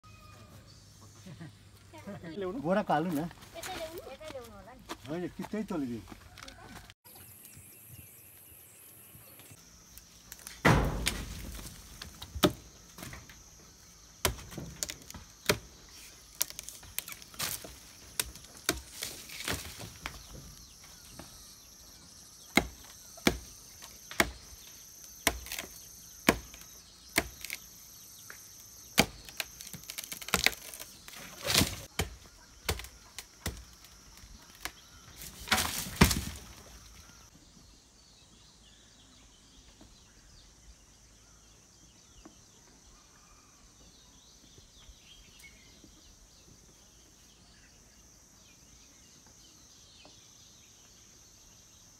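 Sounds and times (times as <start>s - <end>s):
machete chopping branches: 10.3s - 13.4s, 14.2s - 21.2s, 22.5s - 36.7s.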